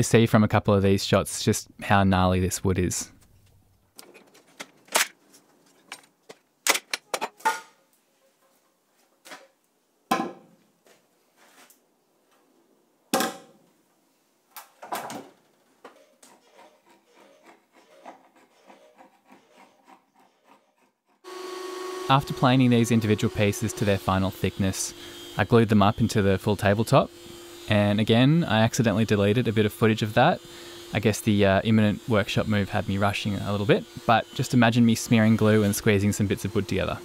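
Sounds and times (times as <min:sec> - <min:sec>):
metal scraper rasping: 0:15.9 - 0:31.1.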